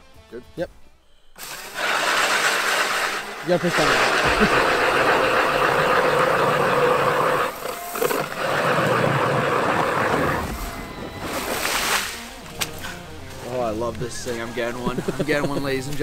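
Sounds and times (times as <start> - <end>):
electric ice auger drilling: 1.4 - 11.7.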